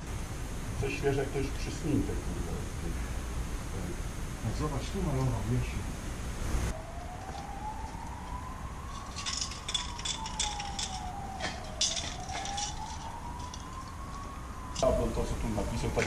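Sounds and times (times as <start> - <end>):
siren wailing faintly: 6.6 - 16.0.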